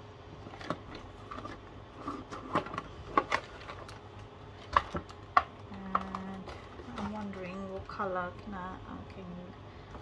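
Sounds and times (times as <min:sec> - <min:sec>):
plastic boxes clicking and knocking: 0:00.4 - 0:08.1.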